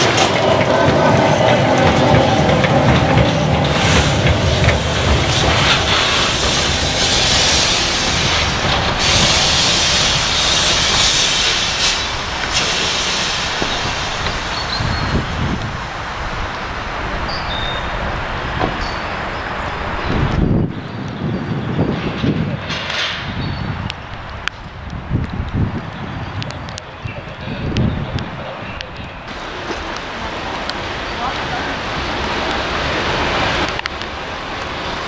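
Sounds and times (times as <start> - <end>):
train wheels rumbling on rails: 0.0 - 35.0
steam exhaust hiss: 2.3 - 16.5.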